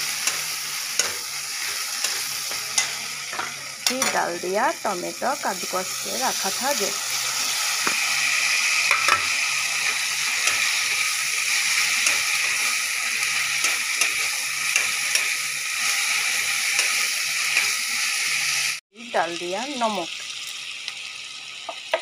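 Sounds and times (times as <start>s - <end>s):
metal spatula scraping pan: 0.0s - 4.2s
paste sizzling in hot oil: 0.0s - 22.0s.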